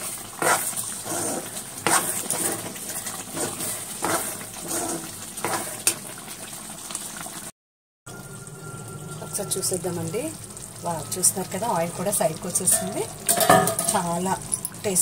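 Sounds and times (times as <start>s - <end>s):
spoon stirring thick gravy: 0.0s - 6.0s
spoon scraping and clinking on pan: 12.7s - 14.0s.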